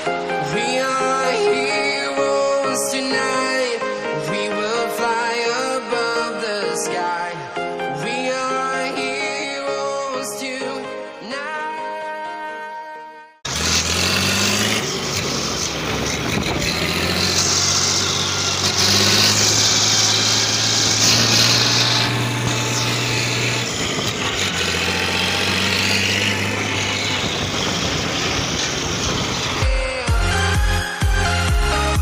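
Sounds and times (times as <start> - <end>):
tractor diesel engine running: 13.5 - 32.0.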